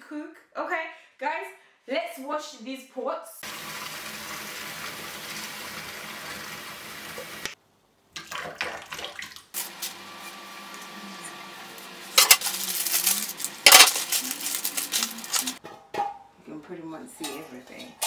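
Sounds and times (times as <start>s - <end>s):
pots and pans clattering: 12.2s - 16.3s.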